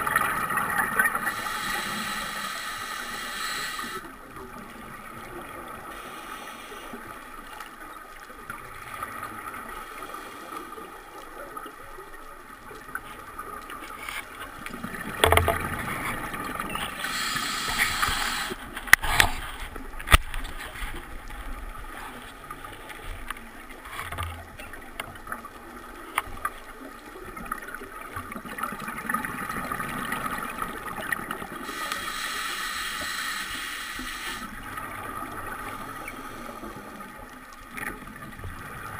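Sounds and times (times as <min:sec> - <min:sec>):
underwater regulator breathing: 0:01.1 - 0:04.1, 0:05.9 - 0:07.1, 0:16.9 - 0:19.5, 0:31.6 - 0:34.6.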